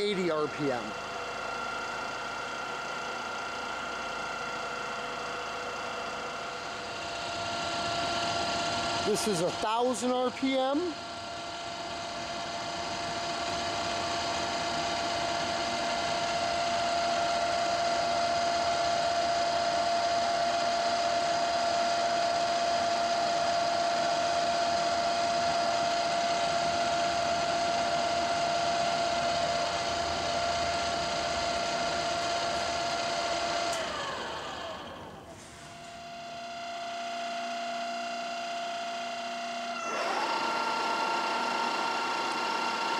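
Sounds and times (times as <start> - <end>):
drill press whining: 0.0 - 42.9
spindle drive whirr: 22.0 - 42.9.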